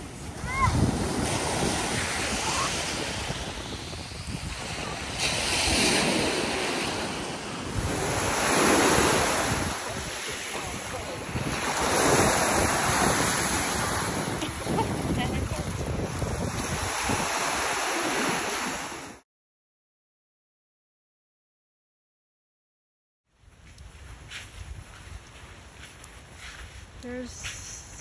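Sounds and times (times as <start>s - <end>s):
waves washing onto shore: 0.0s - 19.2s
wind on microphone: 0.0s - 19.2s.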